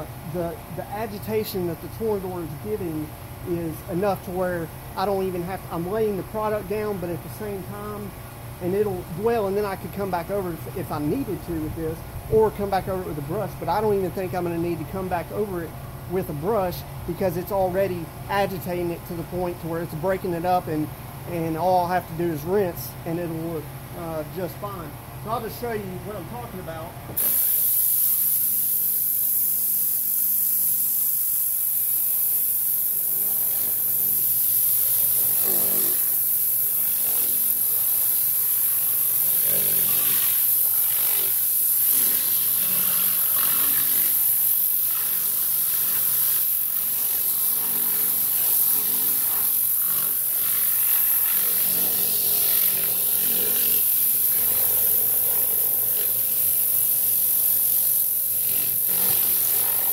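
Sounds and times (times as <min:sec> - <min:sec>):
compressed air gun hissing: 0:27.1 - 0:59.9.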